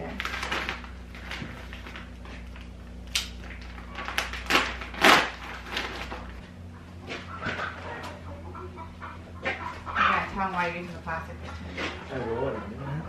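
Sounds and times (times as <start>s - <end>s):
plastic bag rustling: 0.0s - 2.8s, 3.4s - 6.5s
steady low hum: 0.0s - 13.0s.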